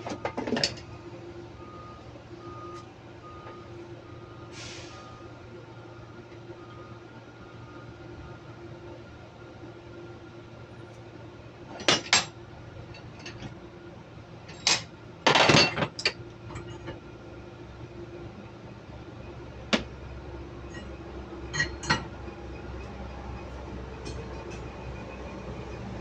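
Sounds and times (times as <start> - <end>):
hand tools clinking on metal: 21.5 - 22.1.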